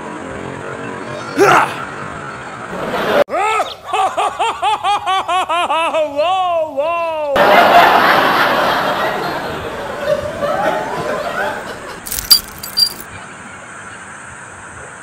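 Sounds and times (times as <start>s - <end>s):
laughter: 2.7s - 6.7s, 7.3s - 12.0s
short metallic clinks: 12.1s - 13.0s.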